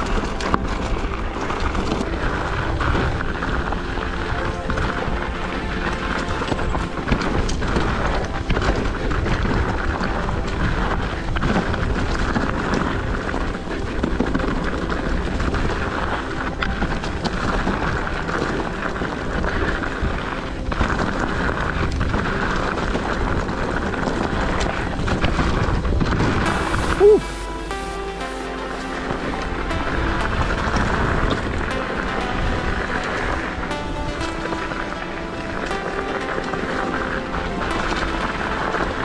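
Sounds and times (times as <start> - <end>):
wind and tyre noise on dirt: 0.0 - 26.5.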